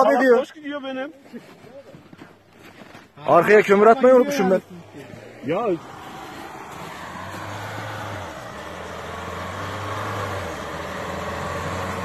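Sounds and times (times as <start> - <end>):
tyres churning snow: 1.2 - 12.0
truck engine pulling under load: 4.7 - 12.0.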